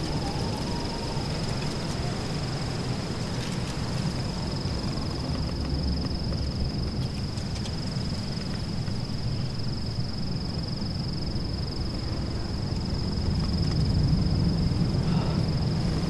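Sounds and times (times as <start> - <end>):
hiss: 14.9 - 16.0.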